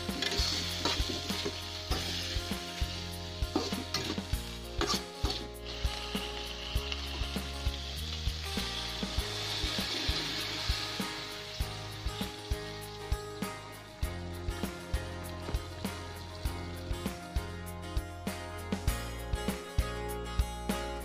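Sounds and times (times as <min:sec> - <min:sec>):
metal spatula scraping a pan: 0:00.0 - 0:06.6
water poured into hot pan: 0:00.0 - 0:17.2
food sizzling in a pan: 0:00.0 - 0:19.9.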